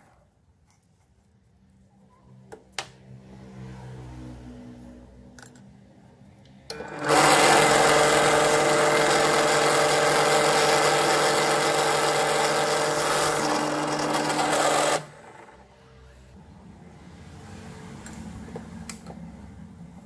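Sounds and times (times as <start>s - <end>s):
drill press drilling into brass: 6.7s - 15.6s
click: 18.9s - 19.2s.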